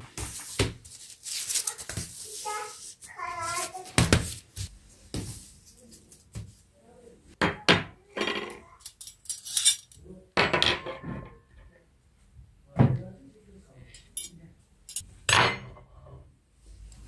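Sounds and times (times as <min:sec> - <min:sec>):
metal cutlery clinking: 0:08.8 - 0:10.0, 0:14.0 - 0:15.1.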